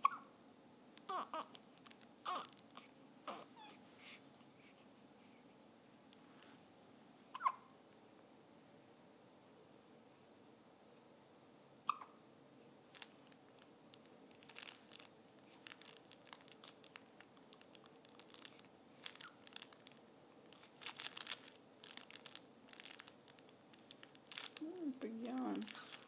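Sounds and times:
soft clicks and rustles: 0:00.9 - 0:06.9, 0:12.9 - 0:26.0
baby vocalizing: 0:02.3 - 0:03.8
baby hiccuping: 0:07.3 - 0:07.7, 0:11.8 - 0:12.2.

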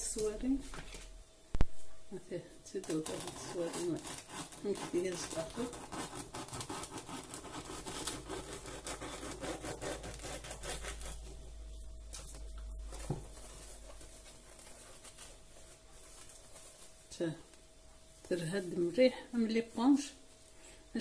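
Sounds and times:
knife sawing bread crust: 0:02.9 - 0:11.3.

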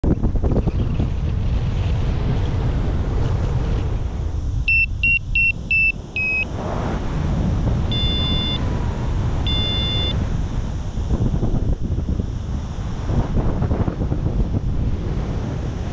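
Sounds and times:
wind rushing over microphone: 0:00.0 - 0:15.9
variometer beeping: 0:04.7 - 0:06.5, 0:07.9 - 0:08.7, 0:09.4 - 0:10.2.

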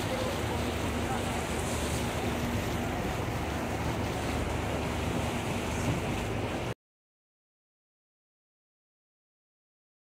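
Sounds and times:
boat engine idling: 0:00.0 - 0:06.7
wind on microphone: 0:00.0 - 0:06.7.

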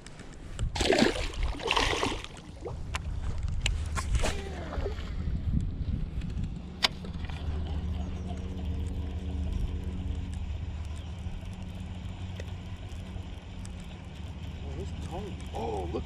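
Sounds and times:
wind buffeting microphone: 0:00.4 - 0:11.6.

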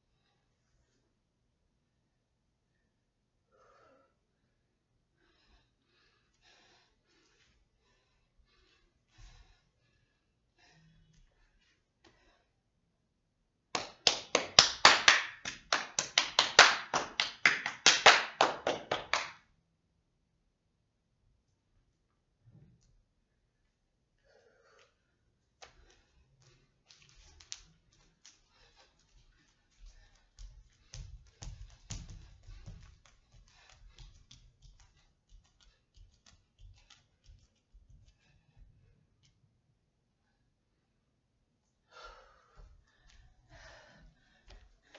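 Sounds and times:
hands clapping and slapping: 0:13.7 - 0:19.4, 0:26.4 - 0:28.9
bare feet on wooden floor: 0:25.6 - 0:39.4.

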